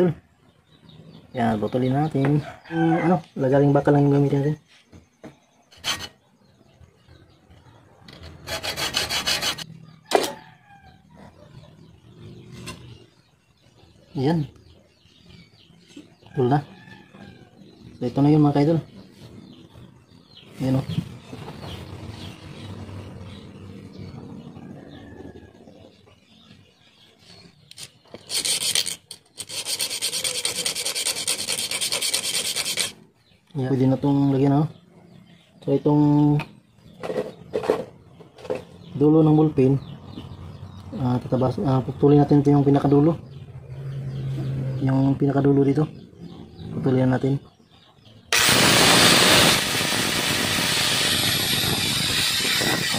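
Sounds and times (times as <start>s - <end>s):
file rasping on metal: 5.7s - 6.2s, 8.2s - 9.7s, 27.7s - 33.0s
hacksaw cutting metal tube: 5.7s - 6.2s, 8.1s - 9.7s, 27.7s - 33.0s, 48.3s - 52.9s.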